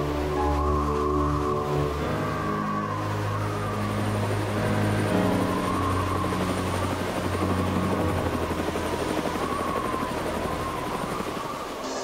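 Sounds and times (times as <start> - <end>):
helicopter engine hum: 0.0 - 12.0
helicopter rotor chopping: 3.3 - 12.0.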